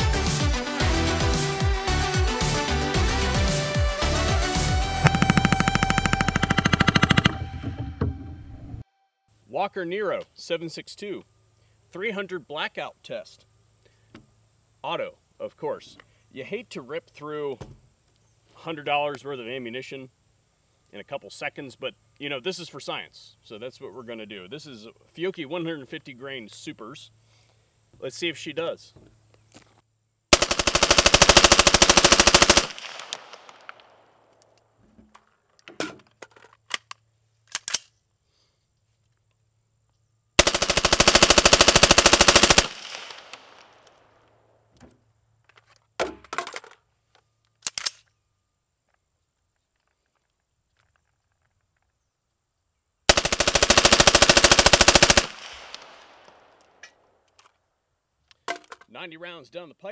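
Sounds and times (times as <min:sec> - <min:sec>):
rifle firing full-auto burst: 0:05.0 - 0:07.3, 0:30.3 - 0:33.6, 0:40.4 - 0:43.6, 0:53.1 - 0:56.2
sharp clicks and knocks: 0:05.0 - 0:08.2.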